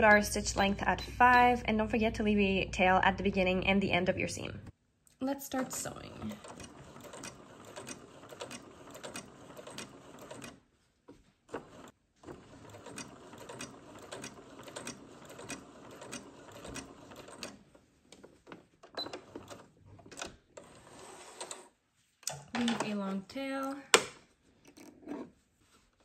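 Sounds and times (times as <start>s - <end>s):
sewing machine stitching: 6.2s - 10.6s, 11.5s - 17.6s, 18.9s - 21.7s.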